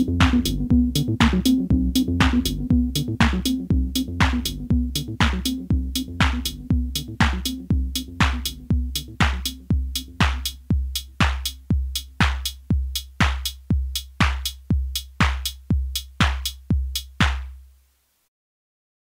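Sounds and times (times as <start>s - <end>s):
low synth bass line: 0.0s - 10.4s
drum machine kick: 0.0s - 17.7s
hi-hat hits: 0.0s - 17.7s.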